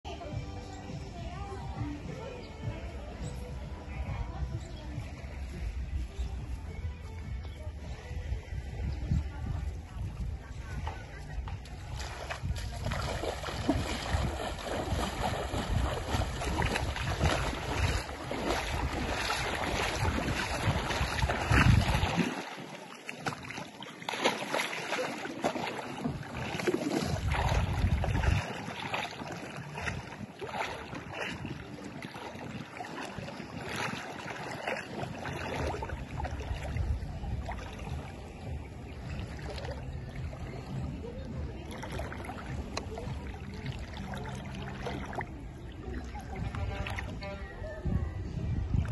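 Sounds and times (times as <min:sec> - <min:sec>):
wind buffeting microphone: 0:02.6 - 0:48.9
water washing: 0:10.6 - 0:47.5.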